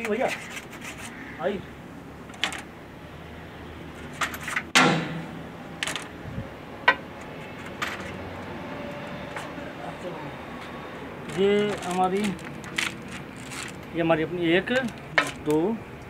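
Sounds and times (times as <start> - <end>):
metal engine parts clinking: 2.3 - 2.7, 3.9 - 5.0, 5.8 - 6.1, 6.8 - 8.2, 11.2 - 14.0, 14.6 - 15.6.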